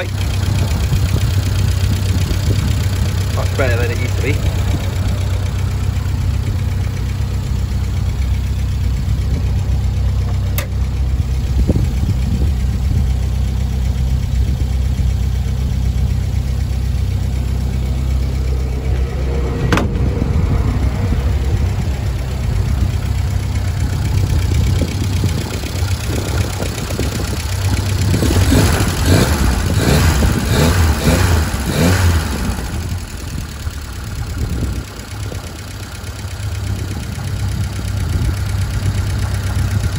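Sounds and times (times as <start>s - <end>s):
car engine idling: 0.0s - 39.9s.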